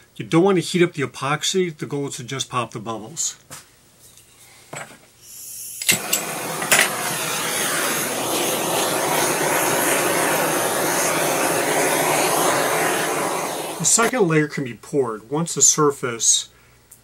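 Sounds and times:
blowtorch flame hissing: 5.2 - 14.1
blowtorch igniter clicks: 5.8 - 14.1.

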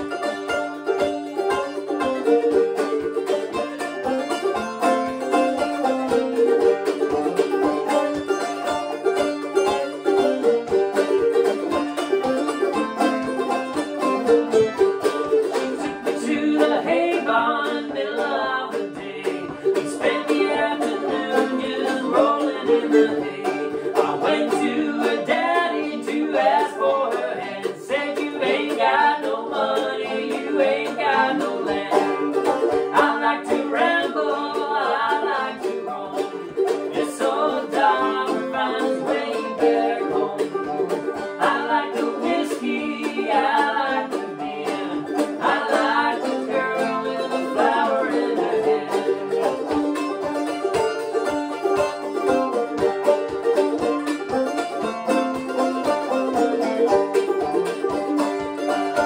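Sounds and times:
banjo and mandolin tune: 0.0 - 59.0
man singing: 16.0 - 32.3.

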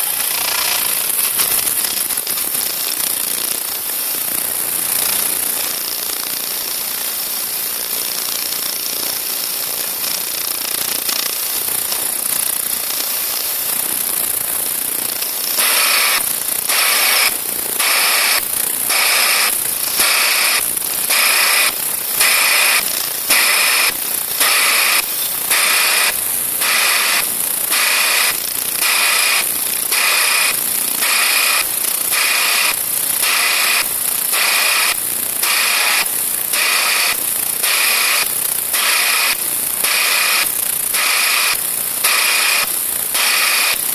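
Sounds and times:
sieving machine hissing: 0.0 - 2.2, 15.3 - 43.9.

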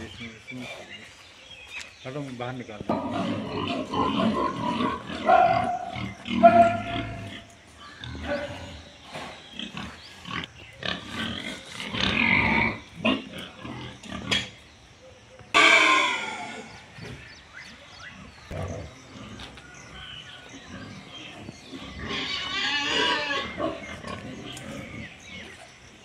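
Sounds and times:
pigs grunting: 2.7 - 14.7, 15.4 - 26.0
pigs squealing: 2.9 - 14.6, 15.5 - 25.7.

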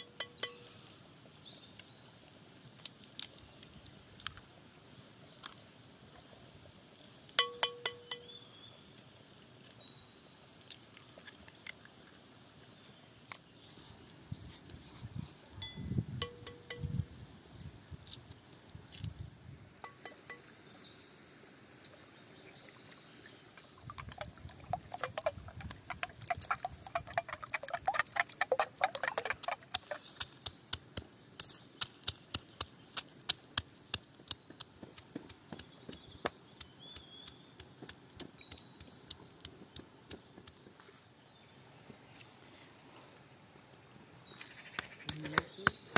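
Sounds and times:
birds chirping faintly: 0.0 - 3.8, 4.4 - 14.8, 18.4 - 45.9
fork beating eggs in bowl: 23.9 - 30.6.

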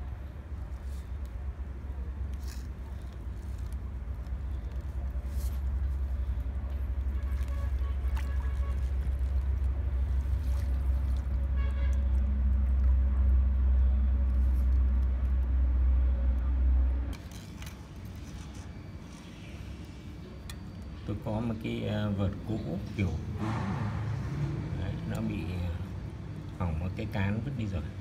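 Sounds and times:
loud low rumble: 8.4 - 17.2, 23.2 - 26.3.

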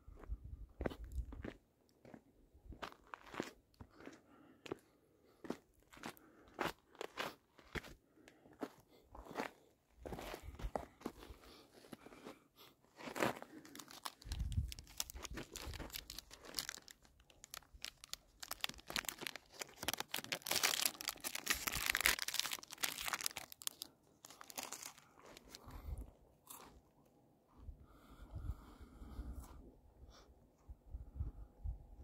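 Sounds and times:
crunching and crinkling: 13.0 - 26.8.

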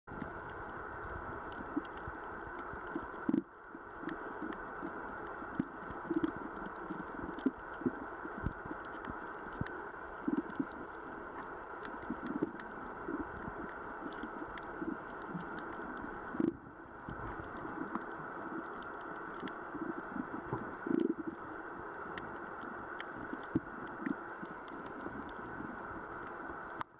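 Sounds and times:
faint clicks: 0.2 - 26.9.

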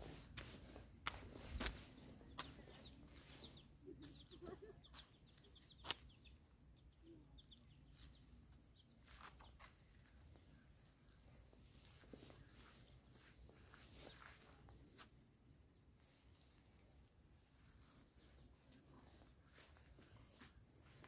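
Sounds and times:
footsteps on dirt path: 0.0 - 6.1, 9.0 - 10.2, 11.4 - 15.1
small birds chirping: 0.0 - 15.4.

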